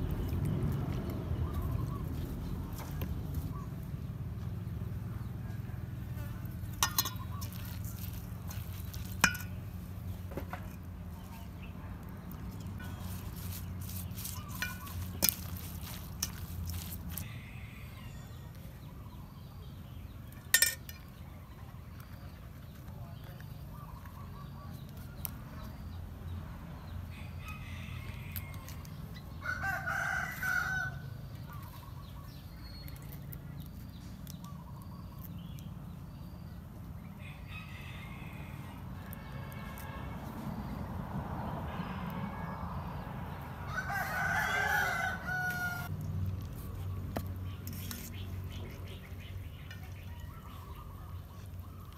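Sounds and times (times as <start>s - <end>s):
rooster crowing: 17.1s - 18.5s, 27.1s - 31.1s, 37.2s - 38.9s, 43.6s - 45.9s.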